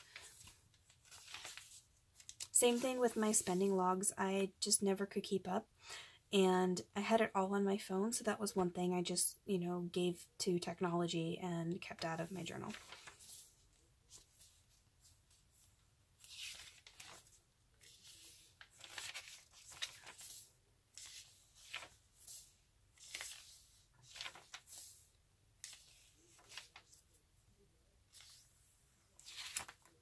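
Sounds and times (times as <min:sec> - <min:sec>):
paper pages being turned: 0:00.0 - 0:03.8, 0:12.7 - 0:27.2, 0:28.1 - 0:30.0.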